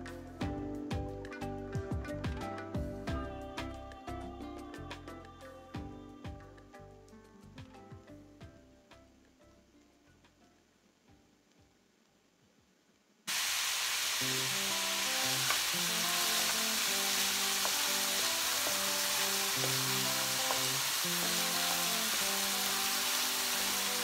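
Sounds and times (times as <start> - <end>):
onion sizzling in hot oil: 13.3 - 24.0.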